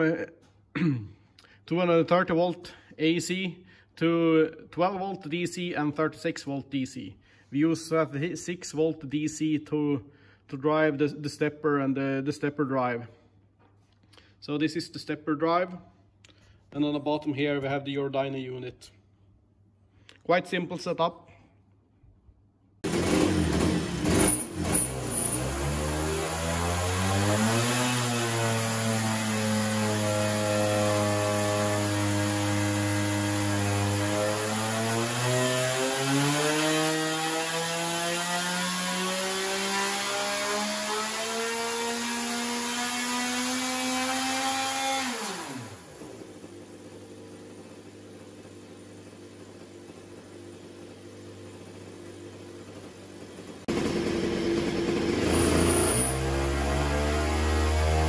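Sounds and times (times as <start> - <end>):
kart engine revving: 22.8 - 58.0.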